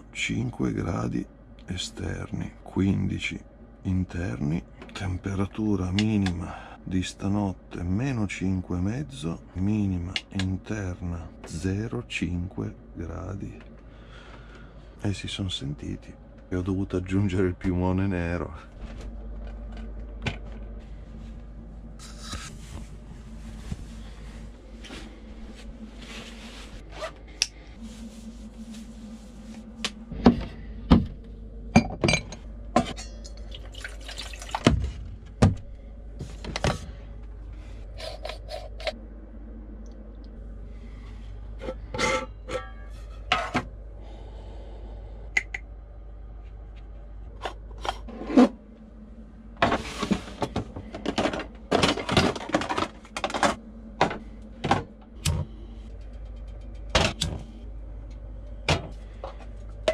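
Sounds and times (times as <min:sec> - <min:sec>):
metal kitchenware clinking and scraping: 0:32.1 - 0:33.4, 0:41.6 - 0:43.6.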